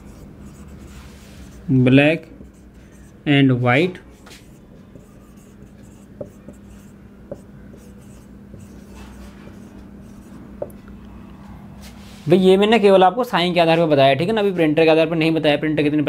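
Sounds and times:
marker rubbing on whiteboard: 0.0 - 10.6
steady low hum: 0.0 - 15.2.

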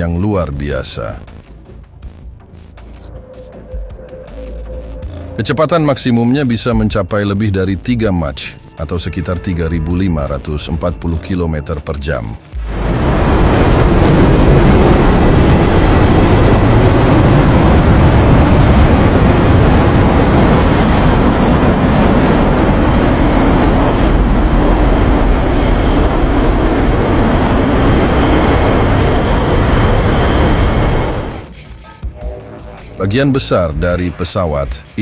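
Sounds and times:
jet engines rushing: 12.6 - 31.5.

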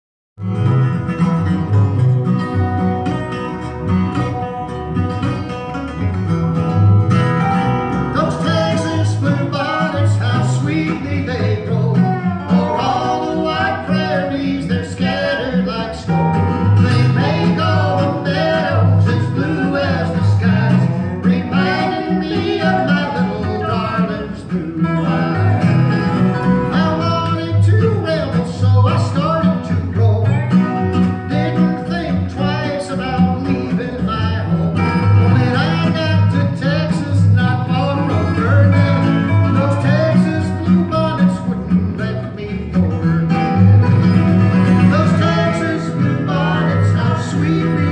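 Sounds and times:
acoustic bass guitar: 0.4 - 47.9
slide resonator guitar: 0.4 - 47.9
strummed acoustic guitar: 0.4 - 47.9
woman and man singing: 8.2 - 16.1, 16.8 - 25.8, 35.2 - 42.8, 44.9 - 47.9.

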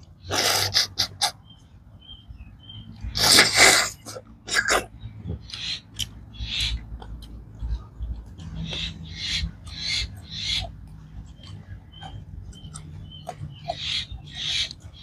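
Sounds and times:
man slurping snails: 0.3 - 1.4, 3.2 - 4.9.

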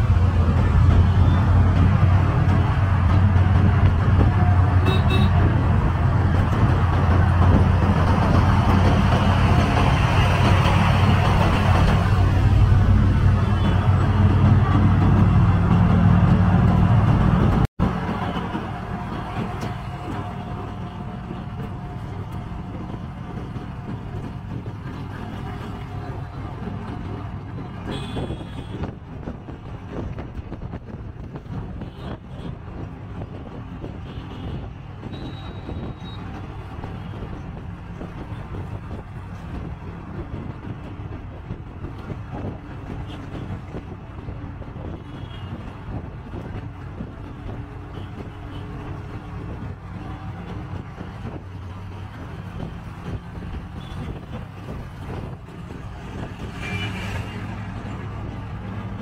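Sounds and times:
auto-rickshaw engine running: 0.0 - 59.0
road and traffic noise: 0.0 - 59.0.

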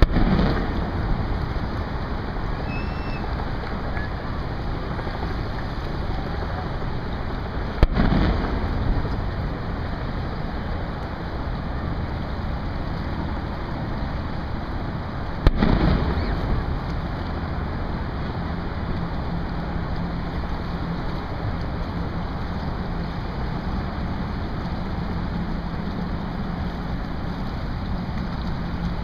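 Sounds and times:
sharp booms with low rumble: 0.0 - 3.5, 7.2 - 10.4, 15.3 - 18.5
water: 0.0 - 29.0
wind noise on microphone: 0.0 - 29.0.

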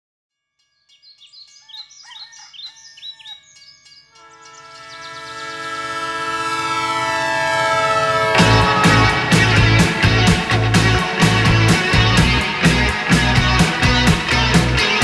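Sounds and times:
bird-like chirps: 0.7 - 5.4
ambient music chord: 4.2 - 15.0.

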